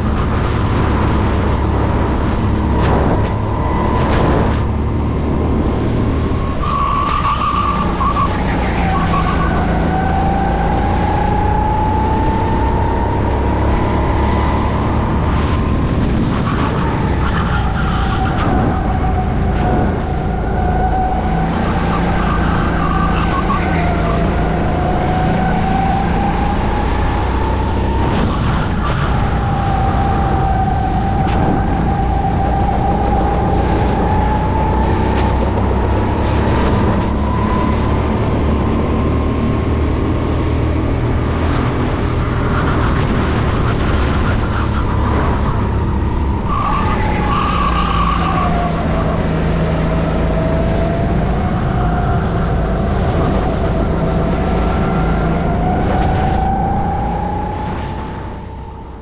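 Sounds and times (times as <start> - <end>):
kart engine racing: 0.0 - 59.0.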